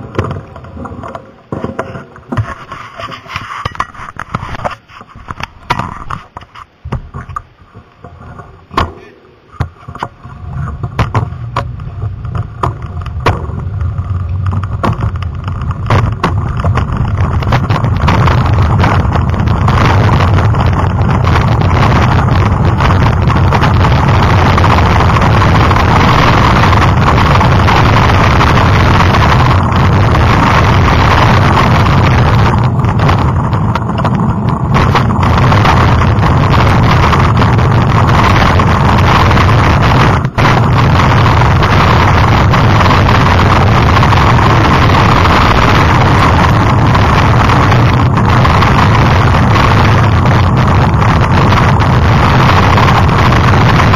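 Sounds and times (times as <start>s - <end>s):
bike rattling: 0.0s - 53.9s
wind rushing on microphone: 1.6s - 53.9s
sharp knocks over bumps: 3.7s - 19.7s.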